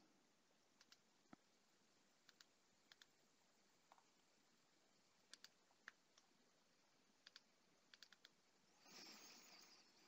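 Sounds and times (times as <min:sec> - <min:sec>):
computer mouse clicks: 0:00.8 - 0:01.4, 0:02.2 - 0:03.2, 0:05.3 - 0:06.3, 0:07.2 - 0:08.4.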